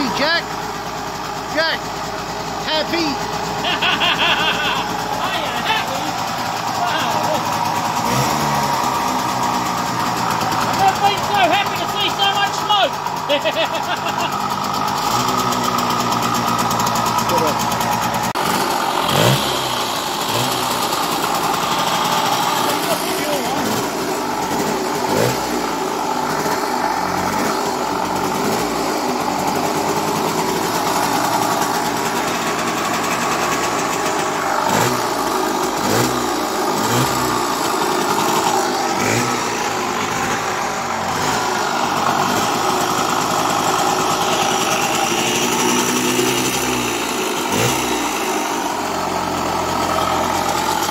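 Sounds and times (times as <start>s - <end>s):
two-stroke engine idling: 0.0s - 50.9s
engine revving blips: 18.4s - 21.0s.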